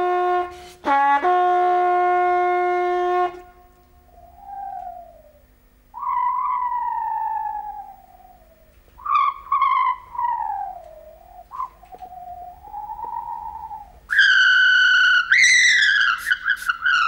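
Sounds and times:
hand whistle falling tone: 9.0s - 17.0s.

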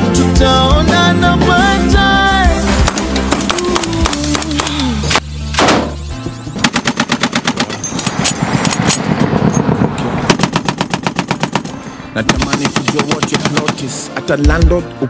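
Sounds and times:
music: 0.0s - 8.2s, 11.0s - 15.0s
single gunshots: 5.6s - 6.0s, 10.3s - 13.9s
rapid automatic gunfire: 6.7s - 7.7s, 10.3s - 11.7s, 12.3s - 13.9s.

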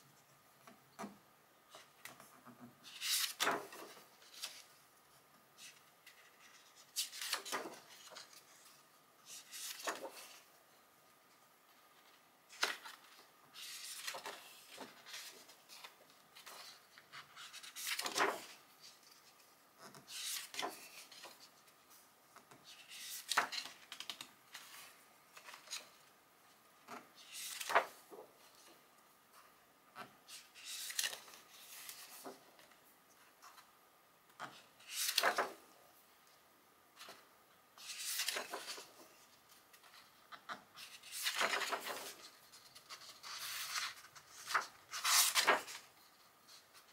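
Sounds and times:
book pages turning: 1.7s - 4.8s, 5.6s - 10.5s, 11.8s - 21.8s, 22.4s - 26.1s, 26.8s - 28.7s, 30.0s - 32.8s, 34.4s - 35.7s, 37.8s - 46.9s.

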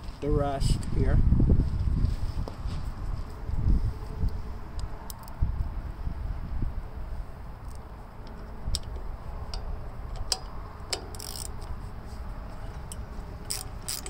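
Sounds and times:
ratchet metal clicks: 7.6s - 11.8s, 12.6s - 14.0s.

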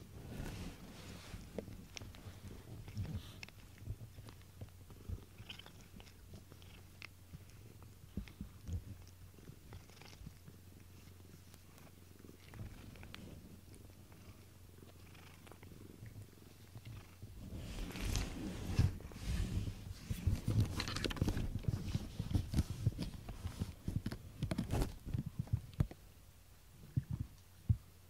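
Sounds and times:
fur rustling against microphone: 0.0s - 3.4s, 17.4s - 25.0s
cat purring: 0.0s - 25.9s.

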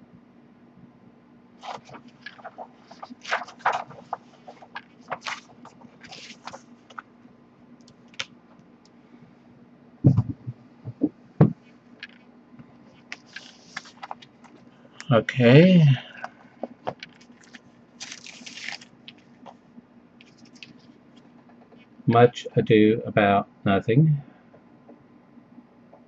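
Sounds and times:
paper crinkling and rustling: 1.6s - 7.1s, 13.0s - 14.7s, 16.6s - 19.6s, 20.2s - 21.3s
dull thumps on table: 10.0s - 11.6s.

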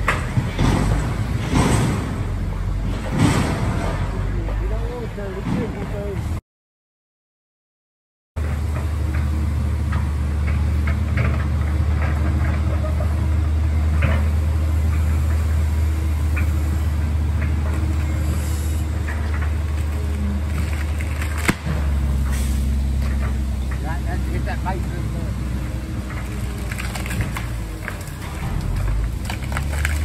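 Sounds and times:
excavator diesel engine running: 0.0s - 6.4s, 8.4s - 30.0s
wood cracking and snapping: 19.1s - 22.0s, 26.1s - 30.0s.

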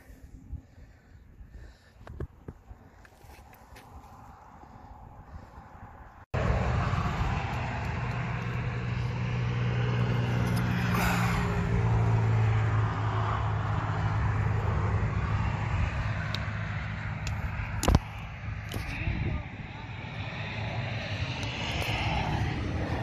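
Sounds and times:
wind: 0.0s - 23.0s
vehicle engine running: 6.4s - 23.0s.

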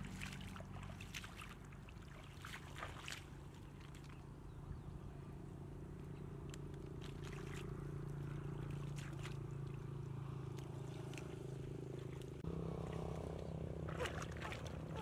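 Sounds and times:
feet wading through muddy water: 0.0s - 4.7s, 5.8s - 15.0s
low motor drone: 0.0s - 15.0s.

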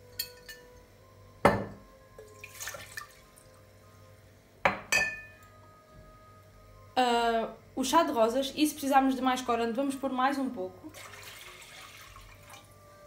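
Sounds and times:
ceramic mug set down: 1.4s - 1.8s, 4.7s - 5.4s
water poured into a pot: 2.2s - 3.5s, 10.9s - 12.8s.

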